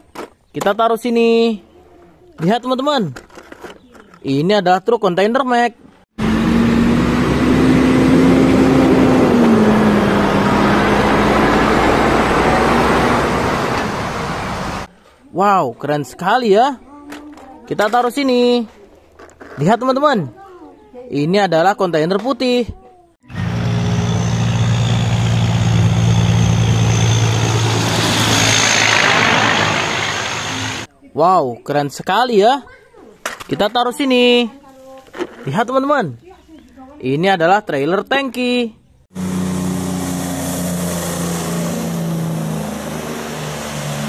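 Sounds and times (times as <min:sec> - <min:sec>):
road and tyre noise: 0:06.1 - 0:15.0, 0:23.2 - 0:30.9, 0:39.0 - 0:44.0
heavy truck engine drone: 0:06.2 - 0:14.9, 0:23.2 - 0:30.9, 0:39.1 - 0:44.0.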